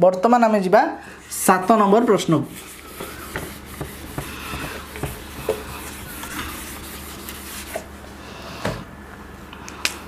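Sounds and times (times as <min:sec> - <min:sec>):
eraser rubbing on whiteboard: 0:02.5 - 0:07.9.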